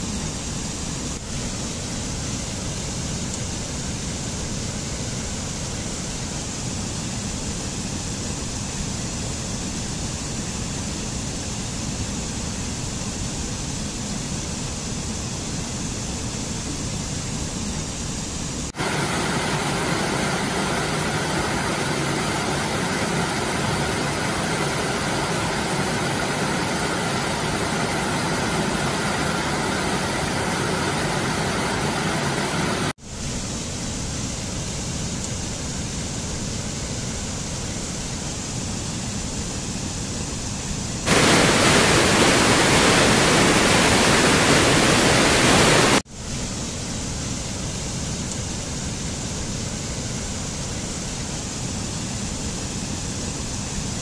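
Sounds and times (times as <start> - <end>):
waterfall rushing over rock: 18.7 - 33.0, 41.0 - 46.0.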